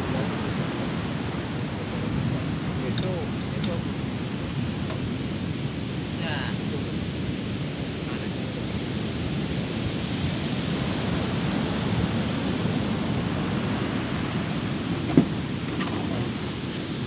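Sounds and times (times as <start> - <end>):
ocean surf washing on beach: 0.0 - 17.0
wind rumbling on microphone: 0.0 - 17.0.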